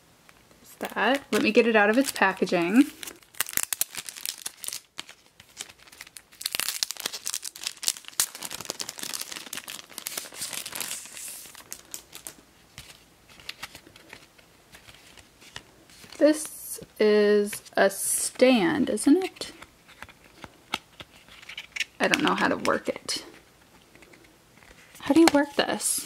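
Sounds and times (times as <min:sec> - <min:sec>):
plastic packaging crinkling: 0:00.7 - 0:16.5.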